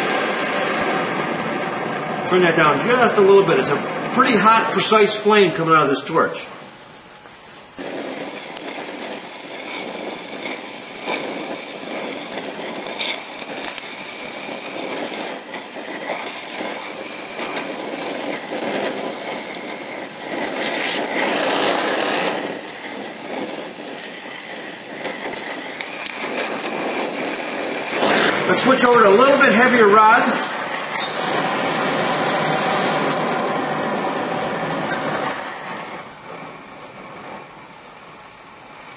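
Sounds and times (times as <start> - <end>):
torch flame hissing: 0.0 - 38.9
weld crackles and pops: 6.9 - 33.4.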